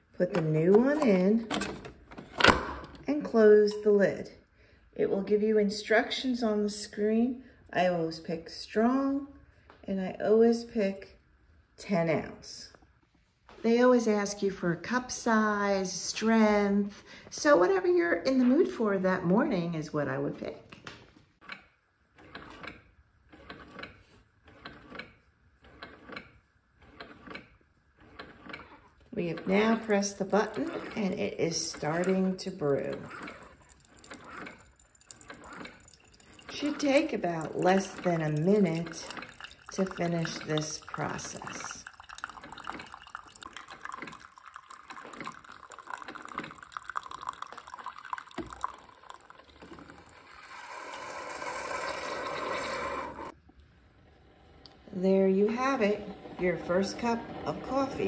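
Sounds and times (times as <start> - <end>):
coffee maker pump ticking: 28.2 - 53.3.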